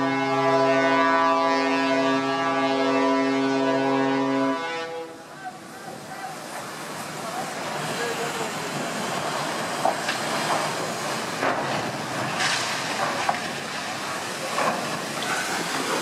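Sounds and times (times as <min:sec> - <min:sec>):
sharp cracks and creaks: 0:11.4 - 0:15.6.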